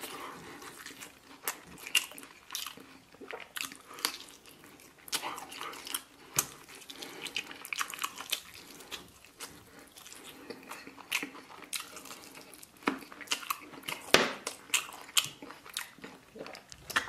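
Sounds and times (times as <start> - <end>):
person chewing meat: 0.0 - 17.0
mouth smacks and clicks: 12.8 - 17.0.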